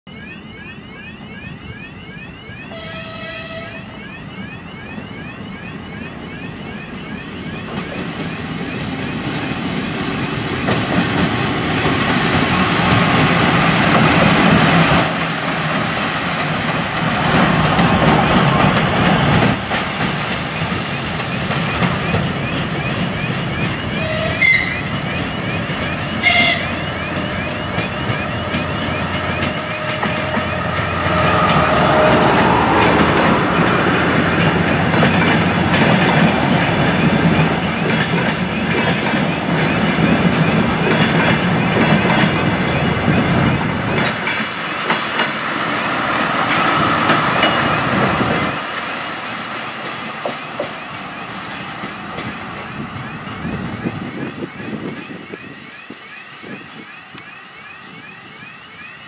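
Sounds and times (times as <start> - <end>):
diesel locomotive passing: 0.2 - 59.0
brief horn toots: 2.7 - 3.9, 26.2 - 26.8
train horn: 2.7 - 3.9, 24.0 - 25.0, 26.2 - 27.5, 29.4 - 33.2.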